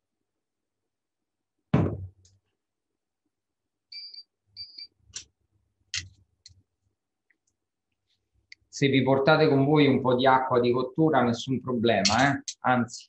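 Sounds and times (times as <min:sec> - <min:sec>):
sharp knock: 0:01.8 - 0:02.1
tongs clicking on metal pot: 0:12.0 - 0:12.6.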